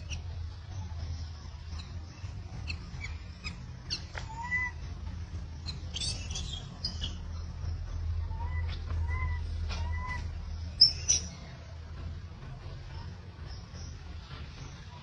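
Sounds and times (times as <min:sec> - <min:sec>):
steady low hum: 0:00.0 - 0:15.0
baby monkey squeaking: 0:01.7 - 0:04.9, 0:05.6 - 0:07.6, 0:08.2 - 0:11.4
baby monkey whimper: 0:02.6 - 0:04.8, 0:08.2 - 0:11.2.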